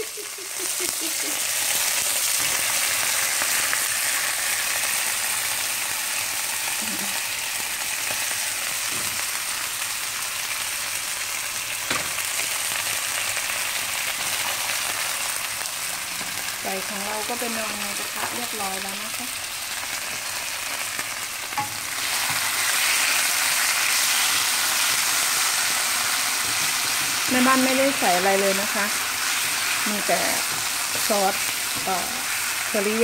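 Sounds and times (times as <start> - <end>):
chicken sizzling in a wok: 0.0 - 33.0.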